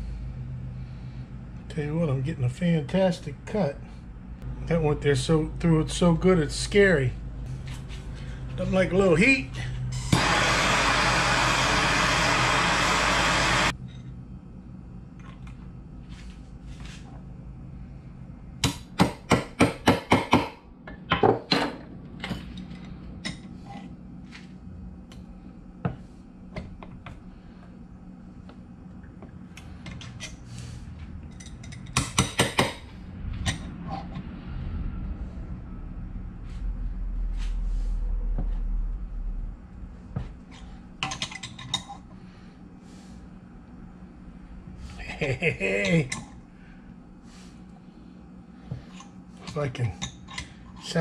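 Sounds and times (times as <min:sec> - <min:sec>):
gas torch hissing: 0:09.2 - 0:13.8.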